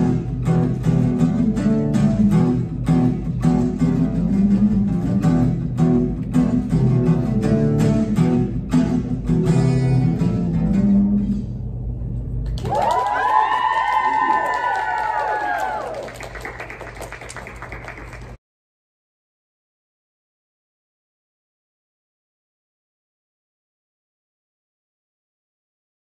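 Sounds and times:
acoustic guitar strumming: 0.0s - 11.8s
listeners cheering and whooping: 12.6s - 16.2s.

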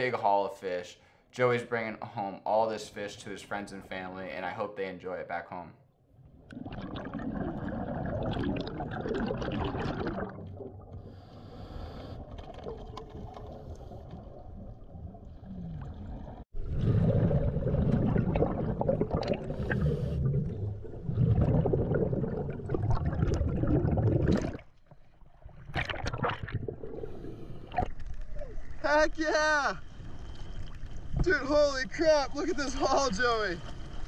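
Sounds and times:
water noise: 6.1s - 34.0s
underwater exhaled air bubbling: 6.2s - 28.5s.

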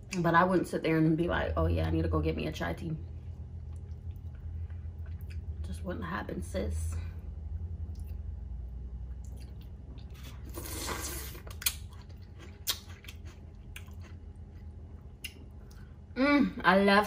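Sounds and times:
chewing noodles: 3.6s - 5.5s, 9.1s - 15.9s.

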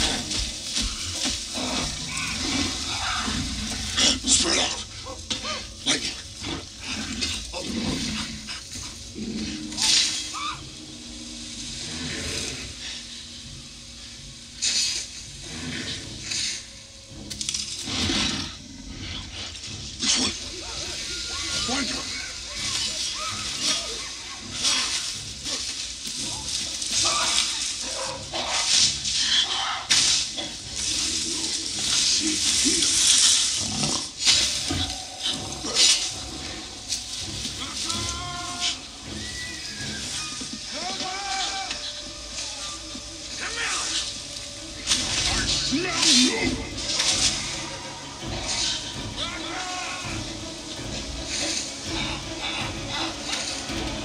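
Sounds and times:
apes calling and grunting: 0.0s - 54.0s
rustle of tall grass: 0.0s - 54.0s.

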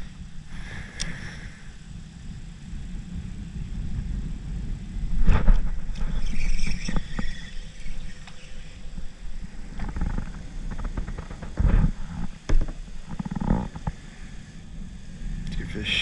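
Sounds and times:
wind rumble: 0.0s - 16.0s
microphone handling noise: 5.0s - 14.1s.

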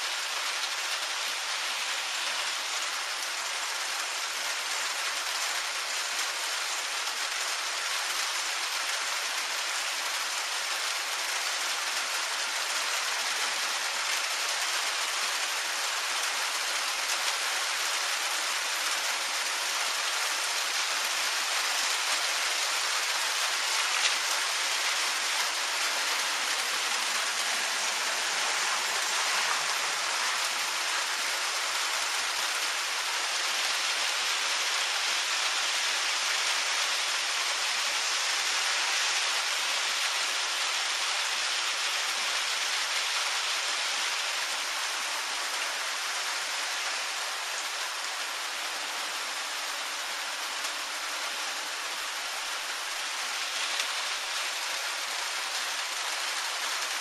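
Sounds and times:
steady rain hiss: 0.0s - 57.0s.

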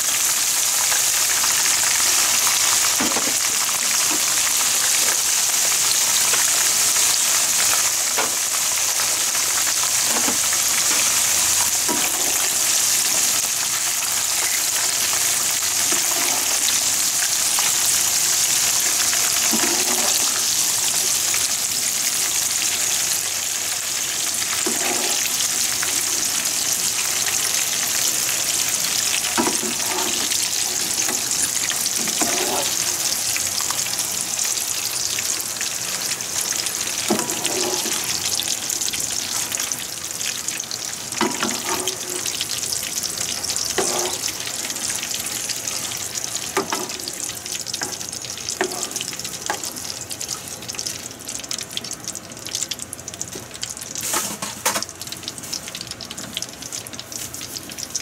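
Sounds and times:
potatoes sizzling in hot oil: 0.0s - 58.0s
wire skimmer scraping pan: 19.5s - 20.4s, 24.6s - 25.3s, 32.0s - 32.8s, 37.1s - 38.1s, 54.0s - 54.8s.

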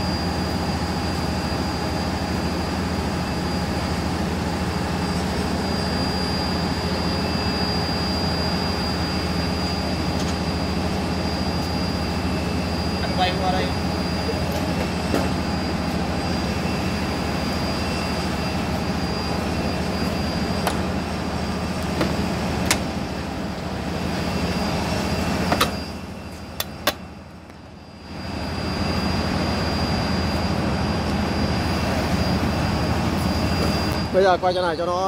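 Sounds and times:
jet turbine whine: 0.0s - 35.0s.

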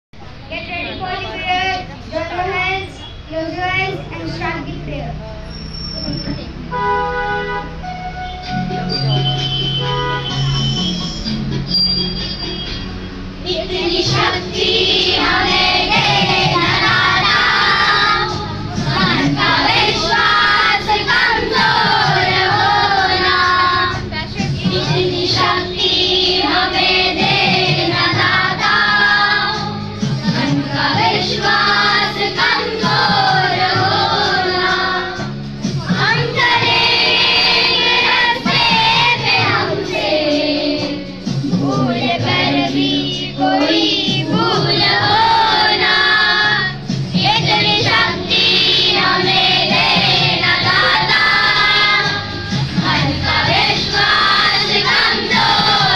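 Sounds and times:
children singing together: 13.4s - 55.9s.

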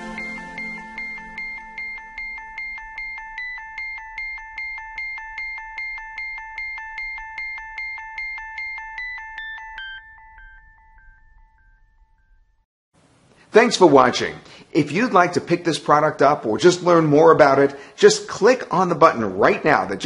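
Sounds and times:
chiming electronic tune: 0.0s - 12.6s
held tone: 0.0s - 12.6s.

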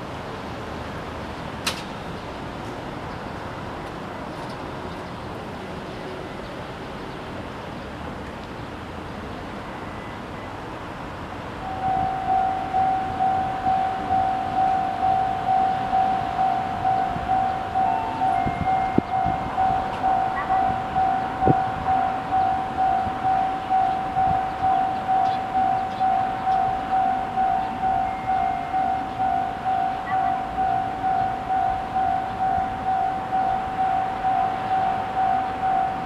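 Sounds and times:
level crossing warning bell: 11.6s - 36.0s.

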